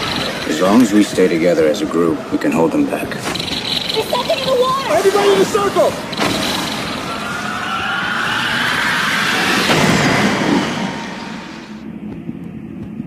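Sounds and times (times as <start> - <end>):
rushing noise with rising whine: 5.8 - 12.9.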